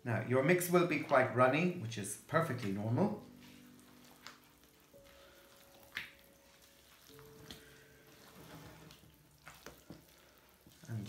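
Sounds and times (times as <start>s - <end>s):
wet batter squelching: 0.3s - 11.0s
spatula scraping bowl: 8.1s - 10.9s.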